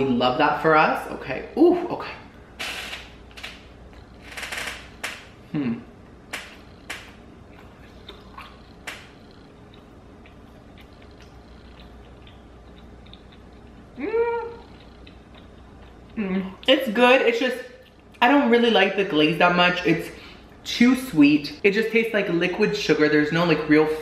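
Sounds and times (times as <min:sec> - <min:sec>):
chewing crunching: 0:03.7 - 0:04.2, 0:06.1 - 0:16.7, 0:17.7 - 0:18.2
wet mouth clicks: 0:06.4 - 0:16.7.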